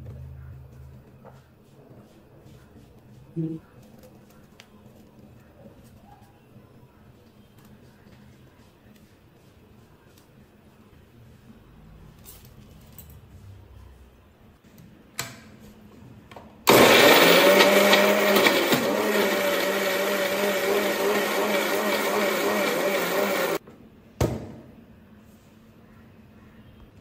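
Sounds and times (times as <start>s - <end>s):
electric mixer grinder grinding: 16.7s - 23.6s.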